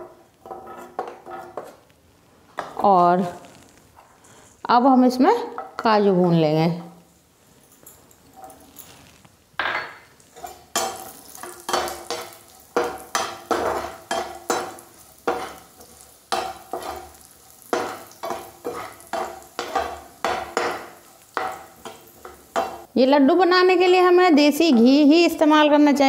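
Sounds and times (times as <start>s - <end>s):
metal skimmer scraping frying pan: 10.3s - 22.9s.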